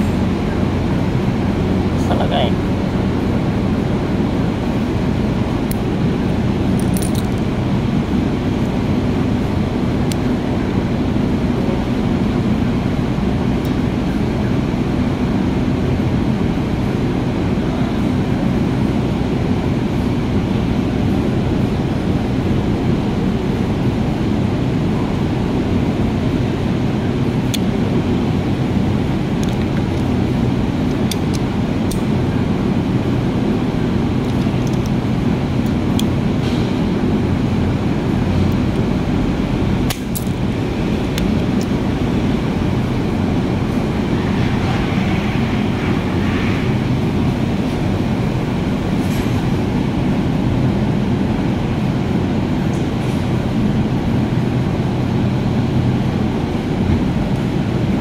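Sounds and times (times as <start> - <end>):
low mechanical drone: 0.0 - 58.0
small metal parts clicking: 6.8 - 7.4.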